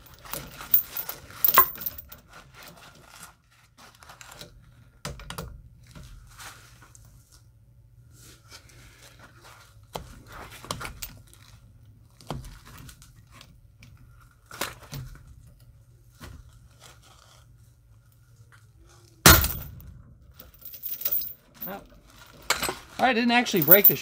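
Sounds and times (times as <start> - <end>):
chain and padlock clinking: 0.0 - 2.2, 19.3 - 19.7, 20.4 - 21.8, 23.5 - 24.0
nail gun bang: 19.3 - 19.6.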